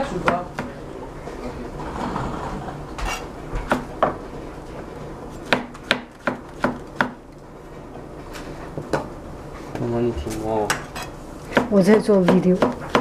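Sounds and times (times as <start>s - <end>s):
knife tapping cutting board: 11.5s - 13.0s.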